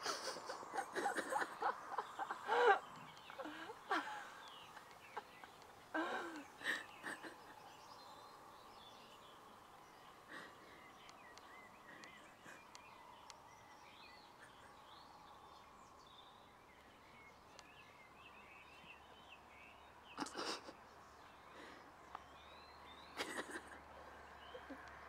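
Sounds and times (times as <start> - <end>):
faint steady hum: 0.0 - 25.0
small birds chirping: 0.0 - 25.0.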